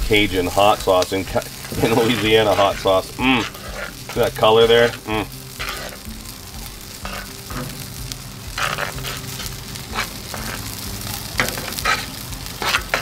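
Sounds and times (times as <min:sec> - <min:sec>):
fish sizzling on griddle: 0:00.0 - 0:13.0
metal spoon scraping pan: 0:01.5 - 0:06.1, 0:07.0 - 0:10.8, 0:11.4 - 0:13.0.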